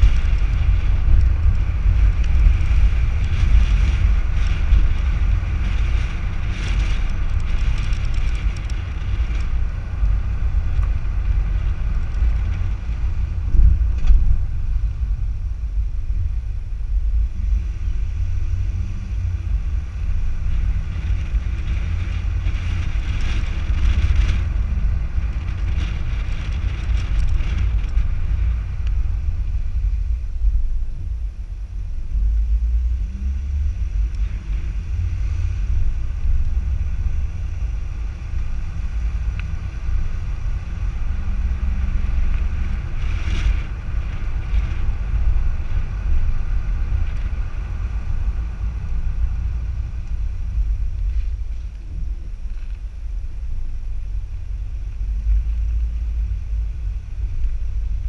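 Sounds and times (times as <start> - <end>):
tyres rumbling on road: 0.0 - 58.0
wind buffeting microphone: 0.0 - 58.0.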